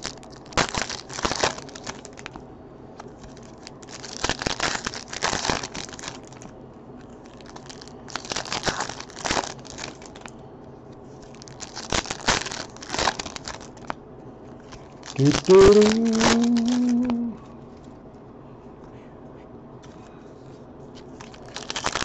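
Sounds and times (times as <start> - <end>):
foil wrappers tearing and crinkling: 0.0 - 2.4, 3.2 - 6.5, 7.2 - 10.3, 11.2 - 14.0, 14.7 - 17.3, 21.2 - 22.0.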